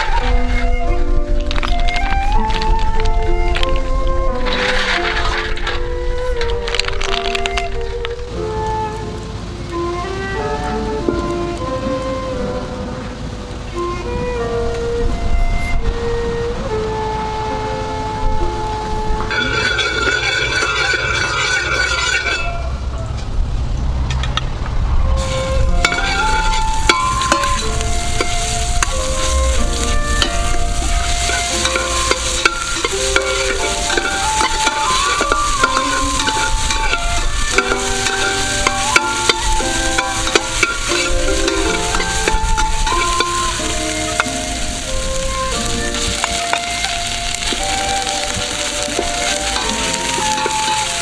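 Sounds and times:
metal ladle scraping pot: 4.4s - 5.9s, 19.3s - 22.6s, 25.8s - 45.1s
paste sizzling in hot oil: 25.2s - 51.0s.

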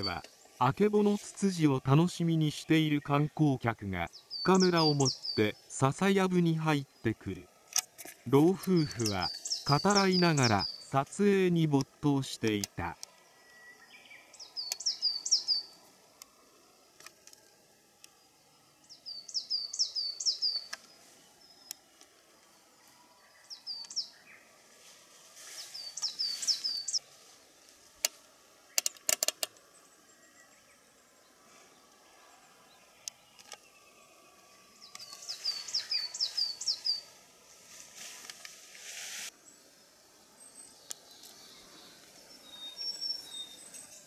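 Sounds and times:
small songbird singing: 0.0s - 15.8s, 18.0s - 21.9s, 22.5s - 24.5s, 25.5s - 27.0s, 29.6s - 37.2s, 39.4s - 44.0s
sharp clicks: 12.5s - 13.2s, 28.8s - 29.6s.

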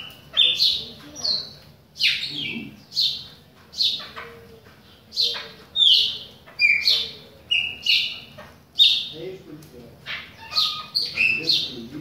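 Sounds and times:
blackbird whistling song: 5.1s - 9.1s, 10.4s - 11.8s.

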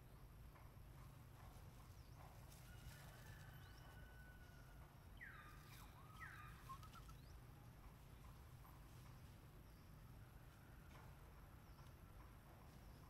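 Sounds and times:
low steady hum: 0.0s - 13.0s
faint high chirps: 5.2s - 7.4s.

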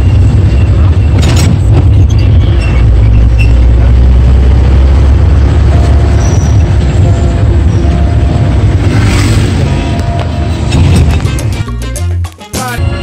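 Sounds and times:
bus engine and road rumble: 0.0s - 13.0s.

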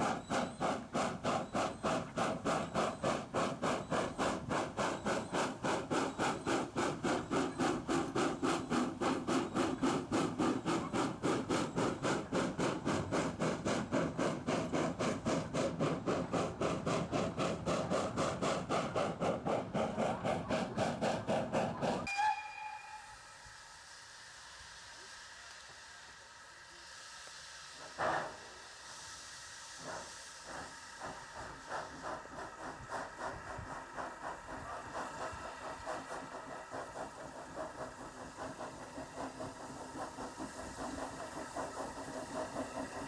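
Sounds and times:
steam hissing: 0.0s - 43.0s
steam locomotive exhaust beats: 0.0s - 43.0s
brief high tone: 22.1s - 23.3s.

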